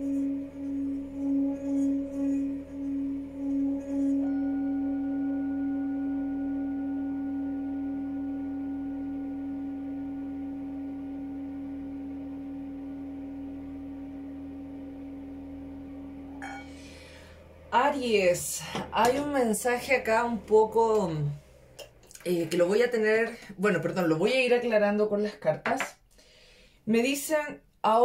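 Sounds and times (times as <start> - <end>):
mallet rubbing singing bowl rim: 0.0 - 21.2
singing bowl ringing: 0.0 - 21.9.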